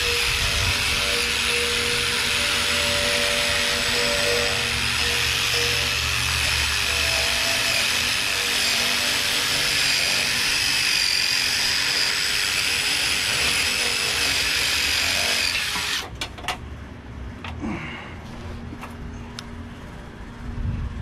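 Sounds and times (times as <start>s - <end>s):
power tool whining: 0.0s - 16.1s.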